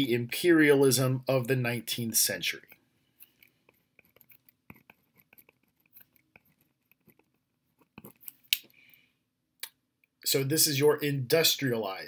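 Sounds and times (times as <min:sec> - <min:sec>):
pen scratching on paper: 0:03.7 - 0:08.3.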